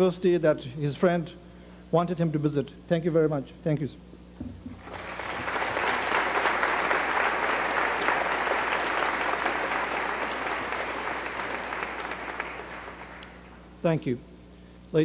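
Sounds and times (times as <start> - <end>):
audience applauding: 4.8 - 13.6.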